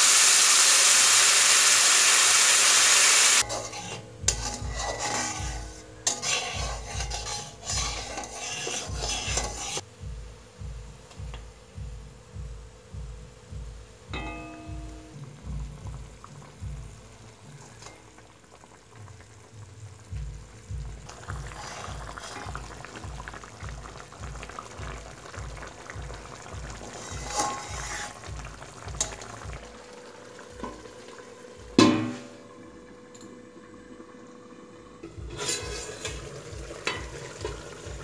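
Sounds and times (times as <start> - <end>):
sauce bubbling and sizzling: 0.0 - 9.9, 13.9 - 38.0
metal plate clattering on pan: 3.4 - 9.8, 27.2 - 28.2, 31.8 - 32.3, 35.0 - 37.9
background music with beat: 3.4 - 18.2, 19.6 - 33.6, 35.0 - 38.0.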